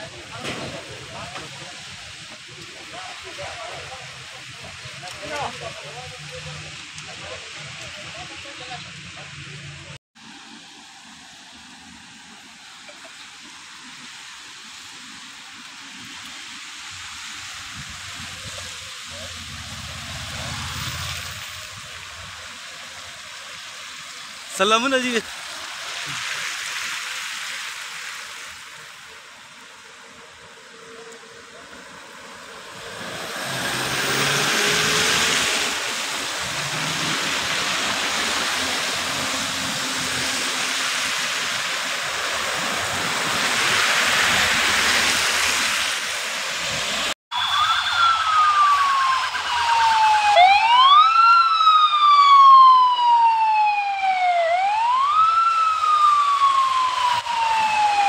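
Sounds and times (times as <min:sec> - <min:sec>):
tyres hissing on wet road: 0:00.0 - 0:58.0
police siren wailing: 0:18.3 - 0:22.0, 0:30.6 - 0:40.9, 0:47.3 - 0:58.0.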